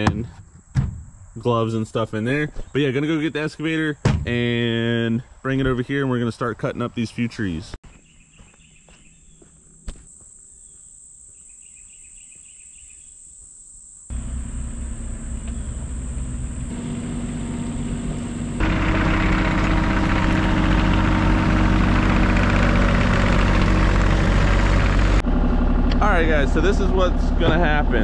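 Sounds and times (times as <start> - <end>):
insects trilling: 8.1 - 18.7
excavator engine running: 14.1 - 28.0.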